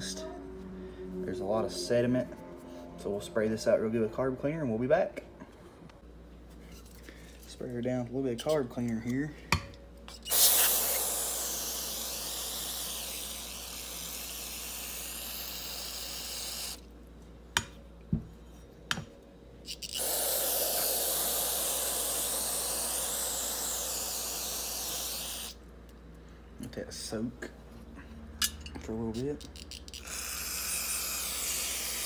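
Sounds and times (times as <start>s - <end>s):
aerosol spray hissing: 10.2s - 16.8s, 19.8s - 25.6s, 30.0s - 32.0s.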